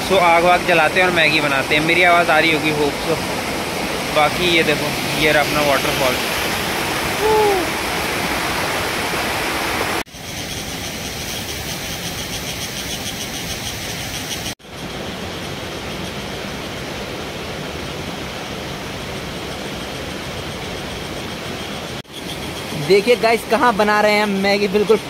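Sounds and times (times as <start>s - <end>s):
waterfall rushing: 0.0s - 10.1s.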